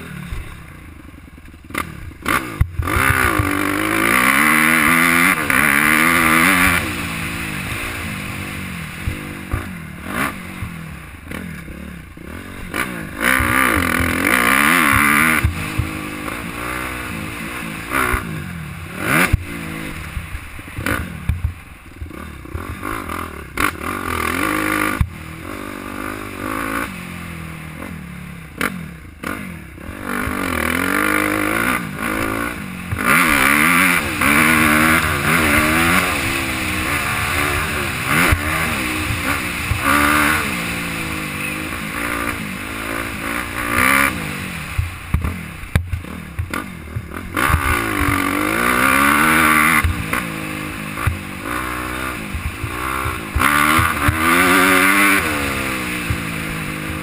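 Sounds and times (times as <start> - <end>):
motorbike engine revving: 0.0 - 57.0.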